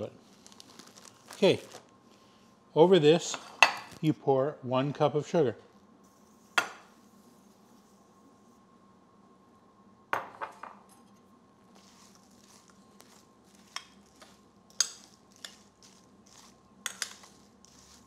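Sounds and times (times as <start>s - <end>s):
rustle of berries and sugar: 0.0s - 1.9s, 11.7s - 18.0s
faint steady hum: 0.0s - 18.0s.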